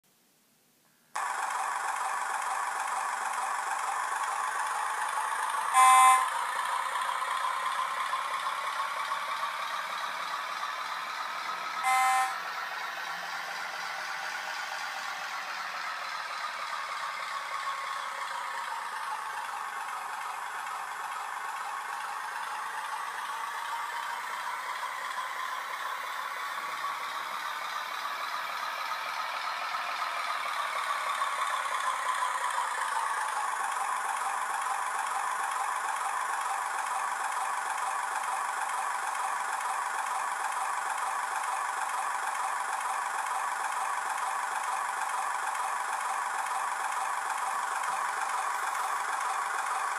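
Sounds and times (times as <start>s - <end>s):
thin diesel engine sound from speaker: 1.2s - 49.9s
short horn toots: 5.8s - 6.2s, 11.8s - 12.4s.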